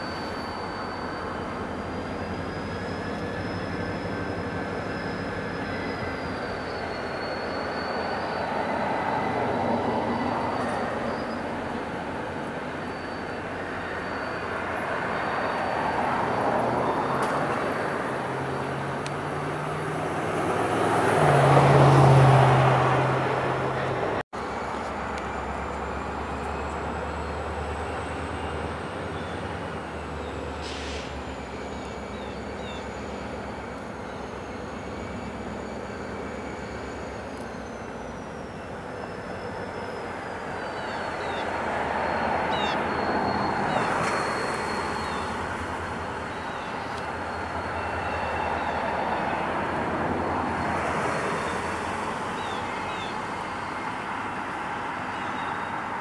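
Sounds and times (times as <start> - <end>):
faint high whine: 0.0 - 17.4
diesel locomotive engine: 0.0 - 56.0
train rolling rumble: 0.0 - 56.0.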